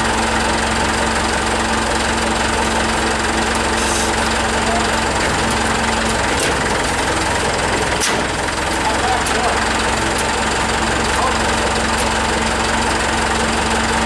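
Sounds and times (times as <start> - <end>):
forklift engine running: 0.0 - 14.0.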